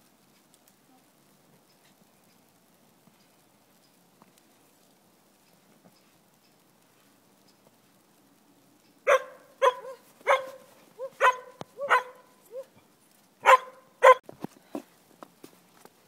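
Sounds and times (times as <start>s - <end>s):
small dog barking: 9.0s - 12.8s, 13.4s - 14.2s.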